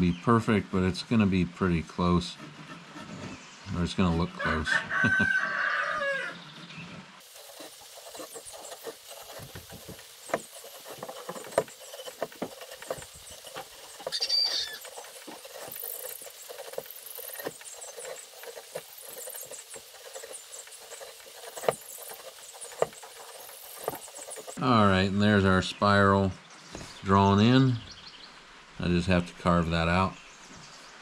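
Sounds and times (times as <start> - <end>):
pencil scratching on wood: 2.1 - 4.3, 6.4 - 24.6.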